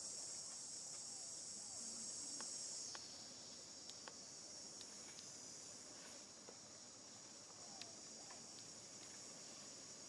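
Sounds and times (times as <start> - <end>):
insects buzzing: 0.0 - 10.0
faint ticks: 2.3 - 5.4, 7.4 - 9.3.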